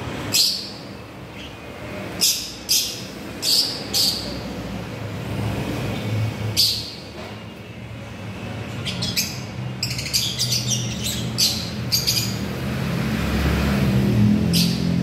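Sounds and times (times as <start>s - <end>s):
lovebirds chirping: 8.8s - 12.5s.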